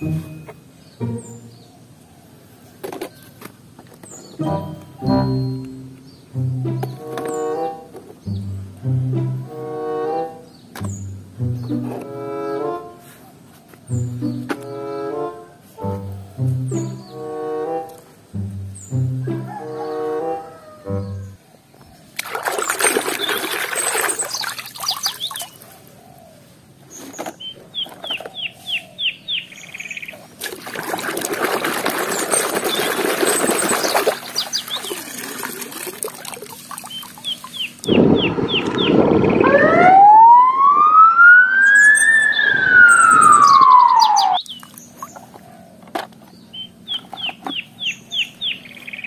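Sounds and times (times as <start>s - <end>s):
high chirps: 0.0s - 1.7s, 4.3s - 7.6s, 36.8s - 44.7s
ambulance siren wailing: 19.3s - 21.4s, 39.1s - 44.4s
water splashing in a tub: 22.2s - 25.6s, 30.2s - 37.9s.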